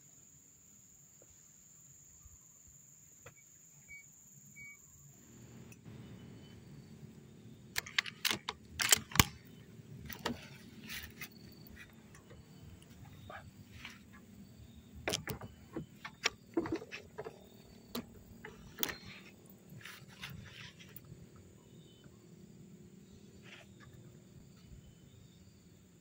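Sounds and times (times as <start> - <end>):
sharp clicks and knocks: 7.7 - 14.3, 14.9 - 21.0.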